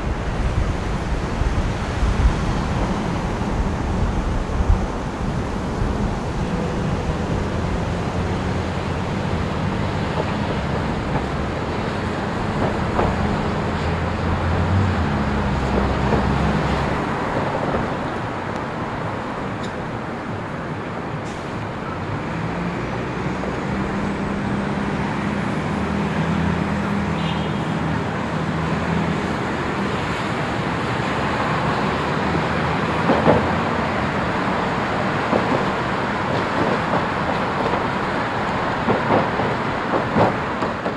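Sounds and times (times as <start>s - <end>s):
wind on microphone: 0.0s - 9.7s
cars and bus passing: 0.0s - 40.9s.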